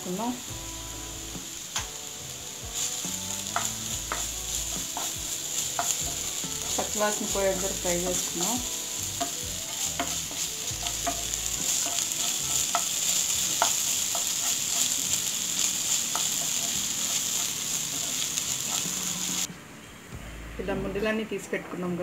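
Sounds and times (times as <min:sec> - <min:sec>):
vegetables sizzling in oil: 0:00.0 - 0:19.5
wooden spatula scraping pan: 0:09.2 - 0:19.1.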